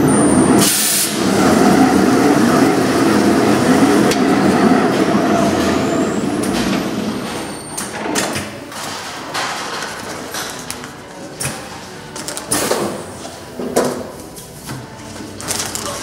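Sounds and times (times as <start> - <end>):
wrapping machine running: 0.0 - 7.9, 15.0 - 16.0.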